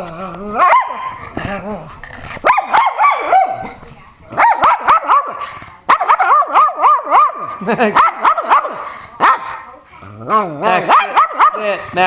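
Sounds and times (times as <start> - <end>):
dog barking and yowling: 0.5 - 1.2, 2.4 - 3.6, 4.4 - 9.5, 10.7 - 11.6.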